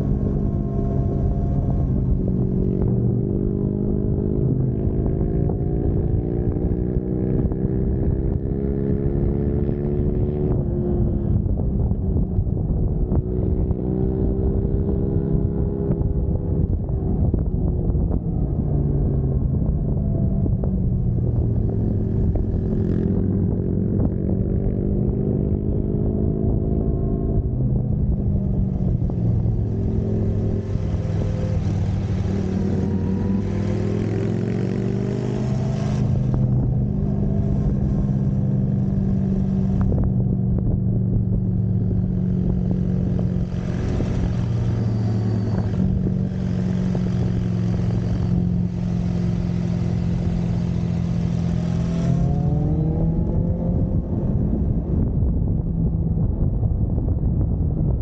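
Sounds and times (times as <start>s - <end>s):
motorcycle engine revving: 20.4s - 55.1s
wind rushing: 27.4s - 58.0s.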